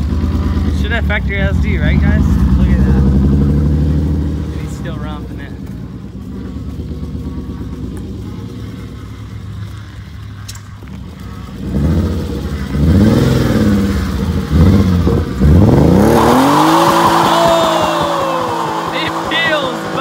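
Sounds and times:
car engine idling and revving: 0:00.0 - 0:20.0
tyres squealing: 0:15.8 - 0:20.0.

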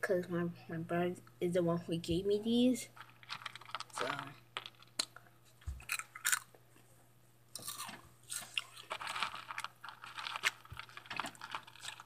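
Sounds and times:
crunchy snacks being chewed: 0:03.0 - 0:06.6, 0:07.5 - 0:12.0.

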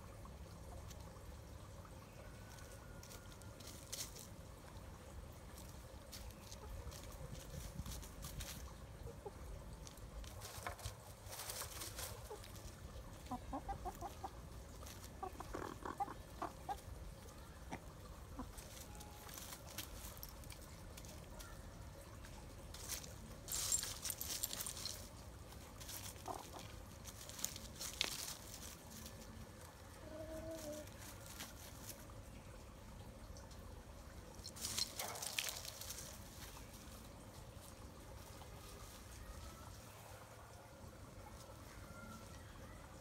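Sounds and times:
chickens clucking: 0:05.6 - 0:23.1, 0:24.5 - 0:32.1
rustling: 0:09.8 - 0:13.3, 0:22.7 - 0:29.4, 0:34.4 - 0:39.2.

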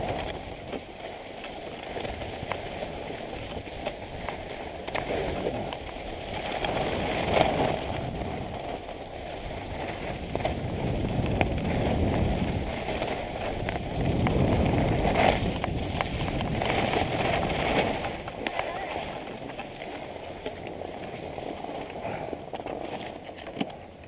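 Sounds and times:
skis scraping over snow: 0:00.0 - 0:24.0
wind on microphone: 0:01.7 - 0:19.6.

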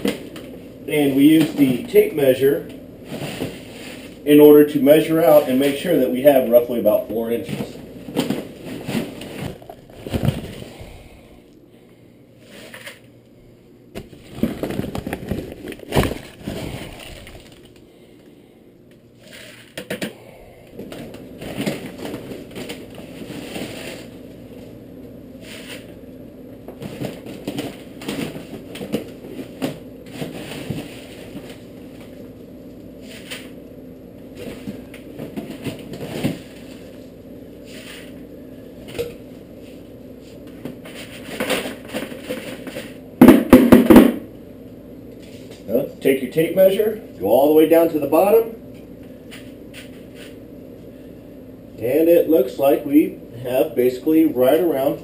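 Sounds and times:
paper sack crinkling: 0:14.0 - 0:17.8.

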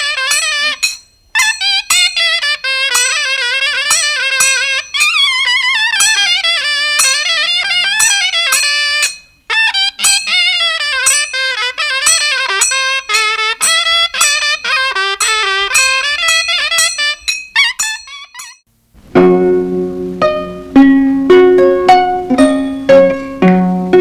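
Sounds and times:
wavering wind instrument melody: 0:00.0 - 0:18.6.

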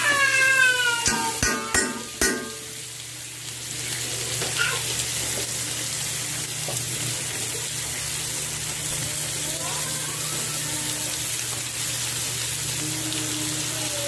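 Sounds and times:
meat sizzling in a skillet: 0:00.0 - 0:14.0
sharp knocks: 0:01.1 - 0:02.7.

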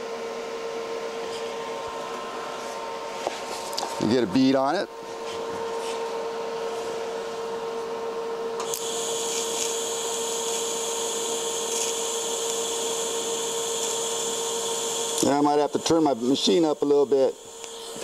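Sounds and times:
steady hum: 0:00.0 - 0:18.0
welding arc hissing and whining: 0:08.6 - 0:18.0.

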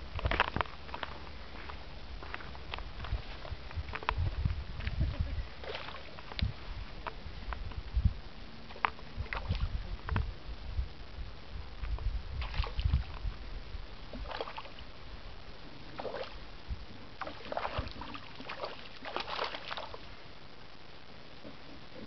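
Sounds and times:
low rumbling thumps: 0:00.0 - 0:18.2
fish splashing in water: 0:05.6 - 0:06.2, 0:08.7 - 0:09.7, 0:12.4 - 0:13.2, 0:14.1 - 0:14.9, 0:15.9 - 0:16.4, 0:17.2 - 0:20.1.

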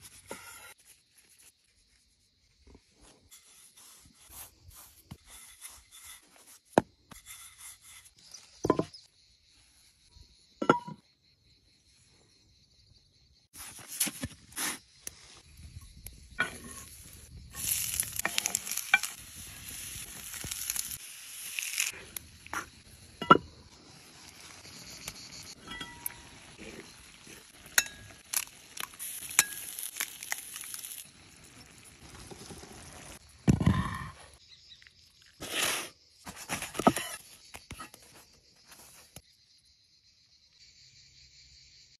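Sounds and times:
butter and tomatoes sizzling: 0:16.5 - 0:33.4.

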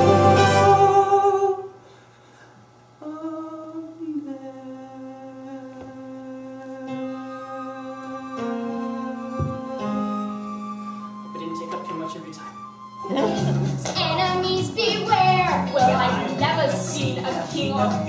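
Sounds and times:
soft sustained instrumental notes: 0:06.8 - 0:18.0
piano accompaniment: 0:06.9 - 0:18.0.

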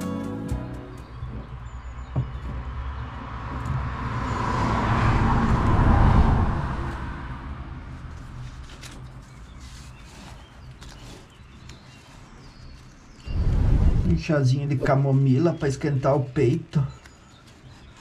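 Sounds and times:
car driving past: 0:01.9 - 0:08.3.

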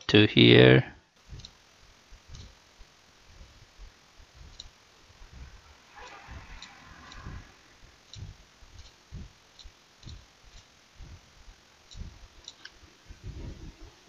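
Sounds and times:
dull low thumps: 0:01.2 - 0:14.0.

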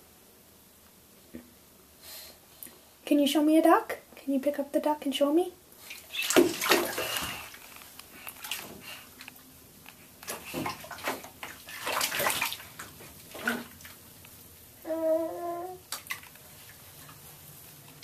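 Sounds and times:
bathwater splashing: 0:05.8 - 0:09.4, 0:10.0 - 0:14.2, 0:15.8 - 0:18.0.

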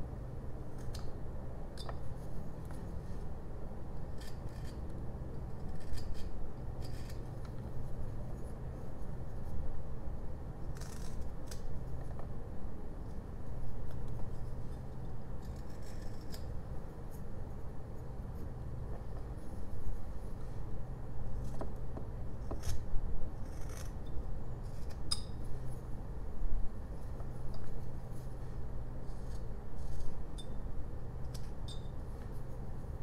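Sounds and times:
knife scraping through wood: 0:29.0 - 0:30.2.

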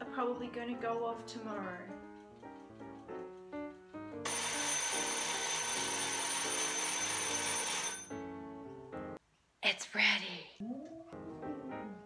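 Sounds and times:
kitchen timer bell ringing: 0:04.2 - 0:08.3.

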